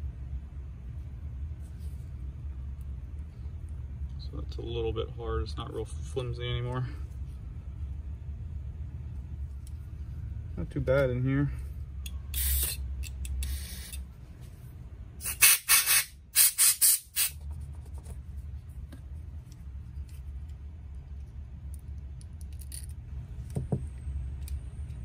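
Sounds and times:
aerosol spray hissing: 15.2 - 17.4.

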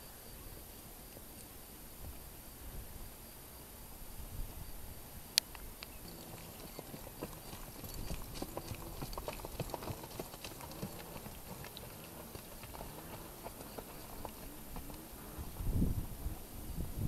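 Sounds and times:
horse hoofbeats on grassy ground: 6.0 - 16.4.

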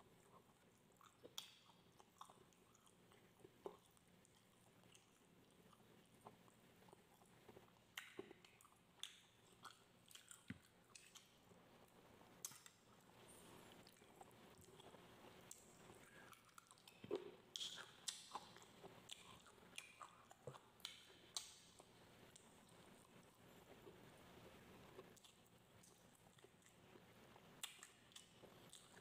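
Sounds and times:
person chewing: 0.1 - 11.5, 12.4 - 24.0.

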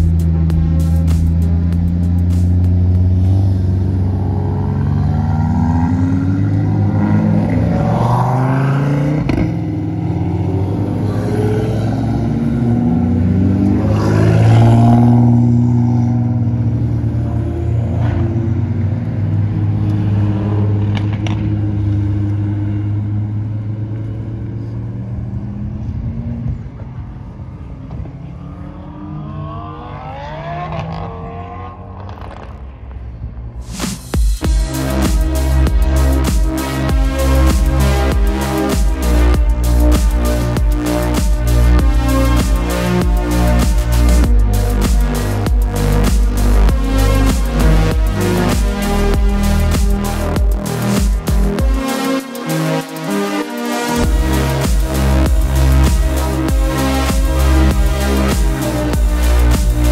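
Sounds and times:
car accelerating with upshifts: 0.0 - 33.6.

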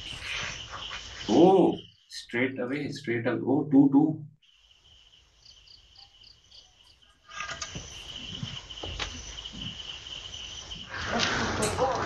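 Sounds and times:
crickets chirping: 0.0 - 3.4, 4.4 - 12.0
background hiss: 4.4 - 12.0.

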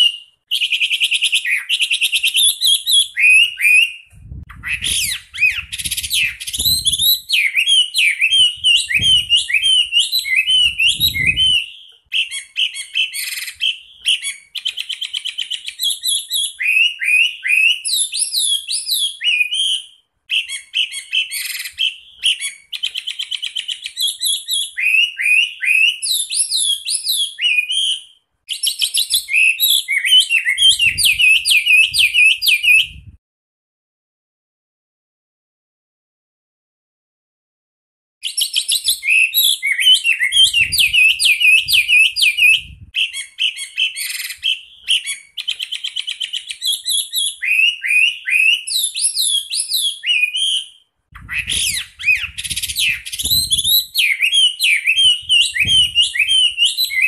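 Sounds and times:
bird singing whistled notes: 0.0 - 33.2, 38.2 - 57.0.

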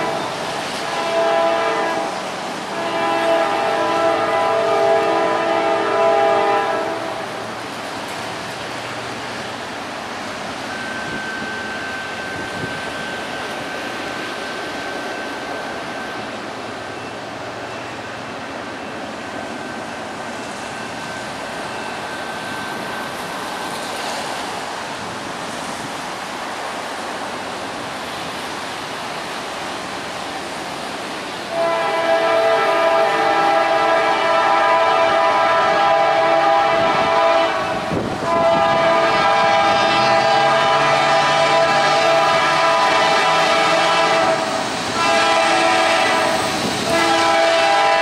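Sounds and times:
locomotive horn chord: 0.0 - 2.1, 2.7 - 7.3, 31.5 - 48.0
steady rushing noise: 36.4 - 48.0.

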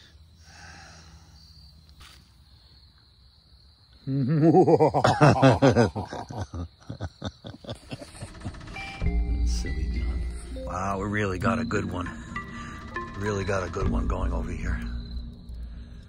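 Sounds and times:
man laughing: 4.1 - 8.6.

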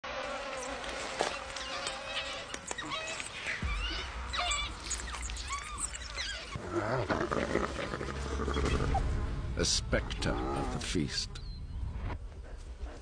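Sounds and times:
wild dogs twittering: 1.3 - 6.6.

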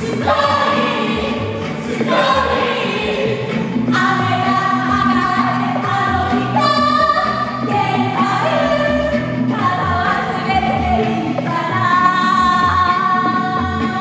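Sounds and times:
instrumental music with bass: 0.0 - 14.0
voices singing together: 0.0 - 14.0.

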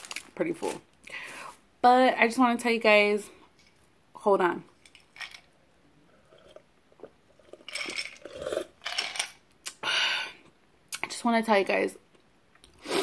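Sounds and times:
sipping and swallowing: 6.2 - 8.8
ice cubes clinking in glass: 7.6 - 9.4.

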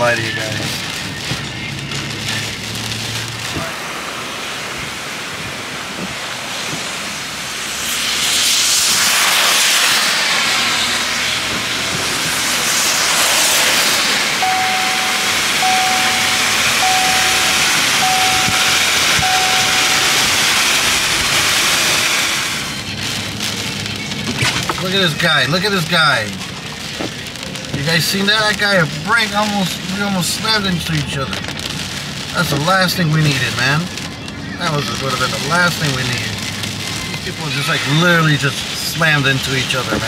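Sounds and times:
rain hissing: 0.0 - 40.0
wet tyres of passing car: 0.0 - 40.0
wind gusting: 3.2 - 23.9
short even beeps: 14.4 - 20.6.

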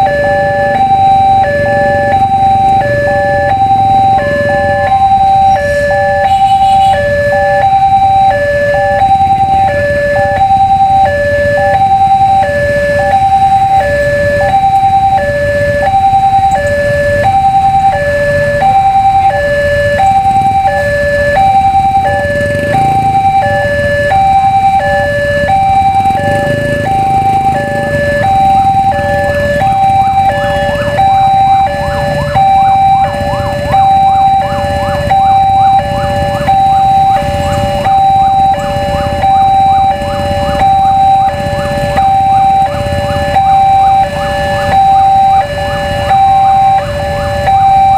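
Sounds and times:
level crossing two-tone alarm: 0.0 - 47.9.

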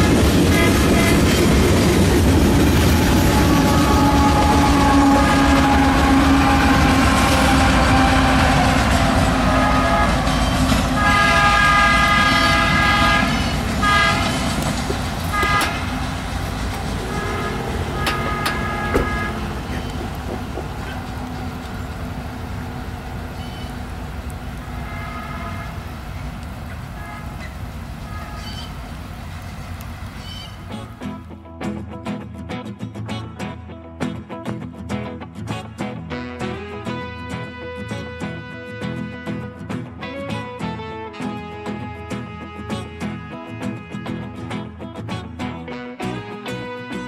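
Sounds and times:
train air horn blasts: 0.0 - 28.8, 36.1 - 44.7
distant horn blasts: 0.0 - 29.5
train rumbling past: 0.0 - 31.2.

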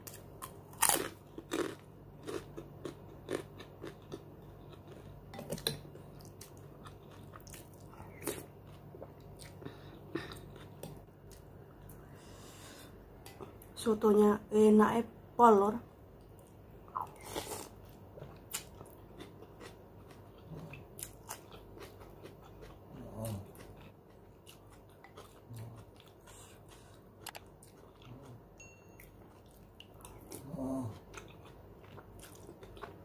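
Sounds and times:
chewing with wet mouth clicks: 18.2 - 28.4
metal spoon ringing against bowl: 28.6 - 29.0.

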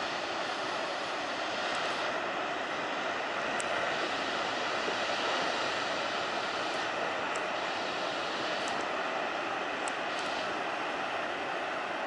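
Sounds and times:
heavy ocean waves breaking: 0.0 - 12.0.

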